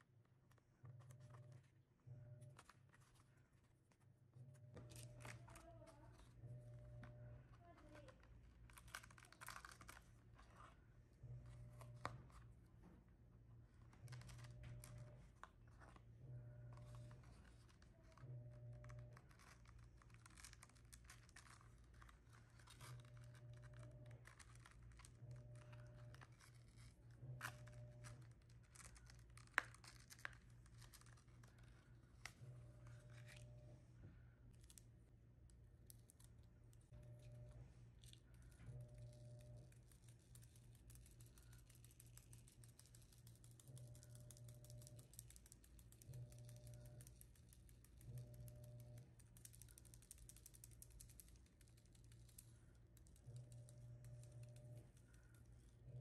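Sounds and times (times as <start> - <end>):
paper peeling and crinkling: 4.7 - 6.4, 7.0 - 10.8, 16.6 - 33.8, 36.9 - 56.0.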